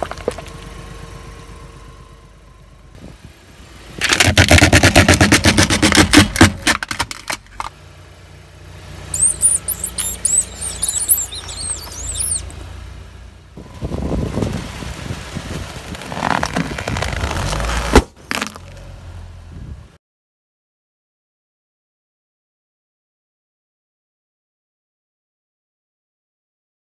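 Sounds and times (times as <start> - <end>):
high squeaks: 9.1 - 12.6
crunching under car tyre: 16.0 - 18.8.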